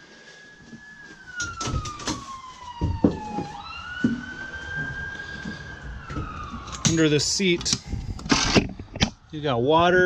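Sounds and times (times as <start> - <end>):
faint wailing siren: 0.0 - 10.0
knocks and thumps: 1.4 - 6.9.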